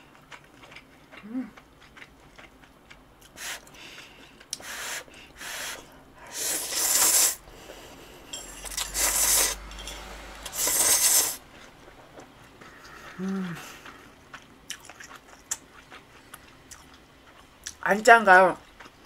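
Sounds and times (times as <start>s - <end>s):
person slurping noodles: 4.6s - 8.0s, 8.7s - 9.6s, 10.4s - 11.4s.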